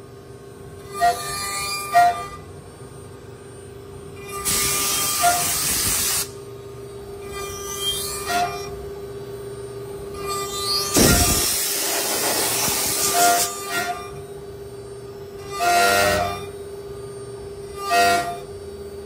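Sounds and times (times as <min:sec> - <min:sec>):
cutter hissing through wood: 0:04.4 - 0:06.4, 0:10.7 - 0:13.7
short machine tones: 0:10.5 - 0:14.2, 0:15.4 - 0:16.6.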